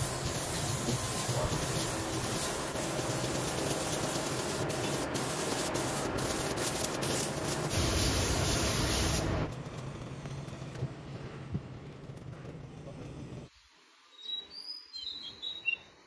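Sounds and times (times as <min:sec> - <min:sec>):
spray gun hissing: 0:00.0 - 0:09.5.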